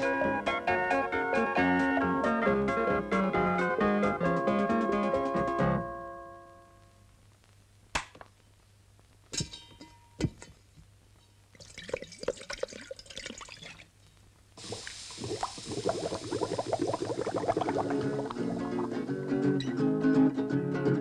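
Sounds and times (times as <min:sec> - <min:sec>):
food bubbling and sizzling in pot: 0:11.4 - 0:19.2.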